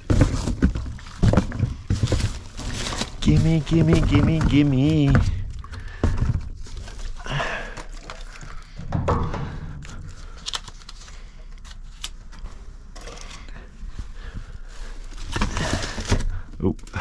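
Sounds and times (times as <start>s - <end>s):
packaging crinkling and rustling: 0.0s - 8.9s, 9.8s - 13.4s, 14.7s - 17.0s
knocks and clicks of items moved: 0.0s - 13.6s.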